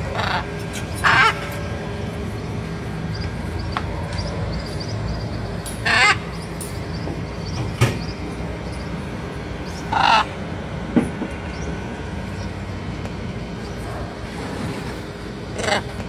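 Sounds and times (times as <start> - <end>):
macaw squawking: 0.0 - 1.7, 5.8 - 7.0, 9.7 - 10.3.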